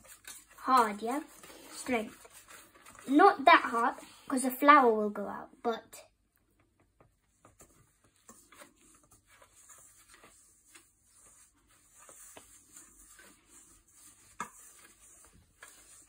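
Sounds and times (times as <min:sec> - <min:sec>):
whisk scraping in metal bowl: 0:07.6 - 0:16.0.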